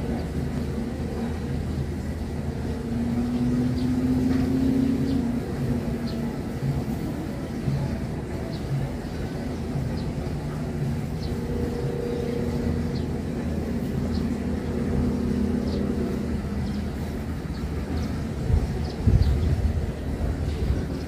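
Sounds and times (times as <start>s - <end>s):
low engine rumble: 0.0s - 21.0s.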